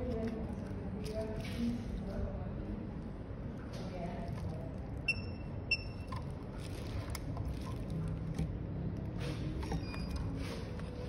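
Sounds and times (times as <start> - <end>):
high electronic beeps: 5.1 - 6.1.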